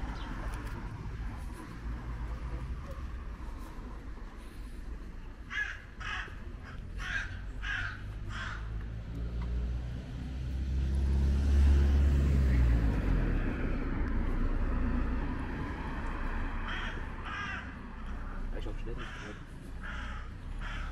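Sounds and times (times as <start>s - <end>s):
low traffic rumble: 0.0s - 20.9s
vehicle approaching: 0.0s - 20.9s
crow cawing: 5.4s - 8.8s, 16.6s - 20.9s.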